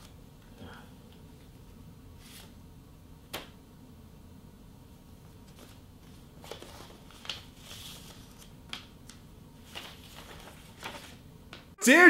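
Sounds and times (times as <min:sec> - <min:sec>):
paper rustling and crinkling: 0:05.4 - 0:11.2.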